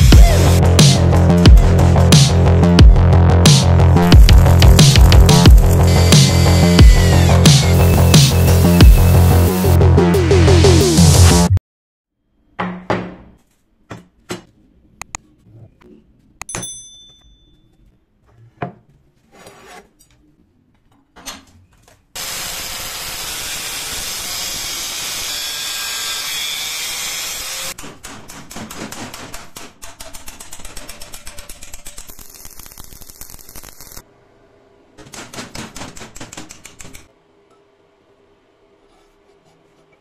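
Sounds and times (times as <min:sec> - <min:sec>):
angle grinder cutting steel: 0:05.7 - 0:09.5, 0:22.2 - 0:27.8.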